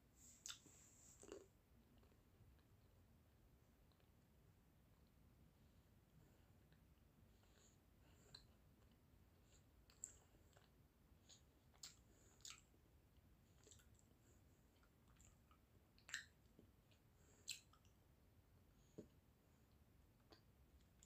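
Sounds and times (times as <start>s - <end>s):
wet mouth chewing clicks: 0.4s - 1.4s, 14.8s - 16.4s, 17.4s - 17.9s.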